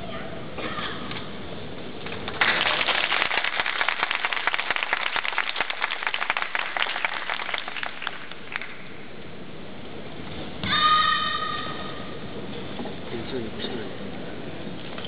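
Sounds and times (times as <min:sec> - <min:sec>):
audience applauding: 0:02.3 - 0:08.8.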